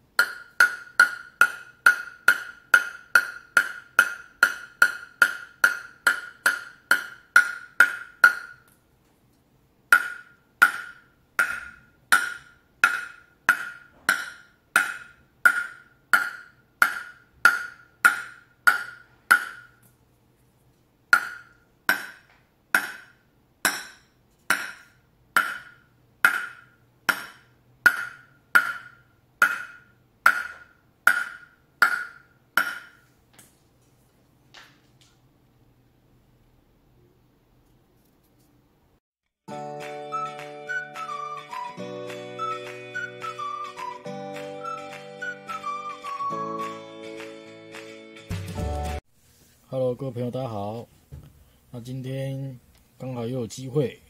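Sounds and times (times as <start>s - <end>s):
ping-pong ball bouncing on paddle: 0.2s - 8.7s, 9.9s - 19.8s, 21.1s - 33.0s.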